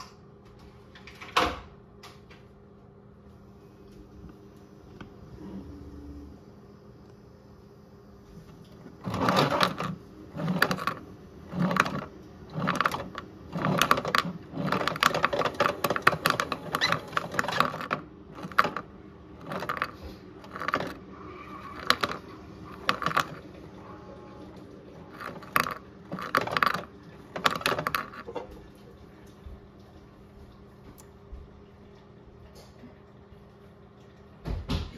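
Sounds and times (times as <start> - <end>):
toy washing machine whirring: 8.4 - 29.2.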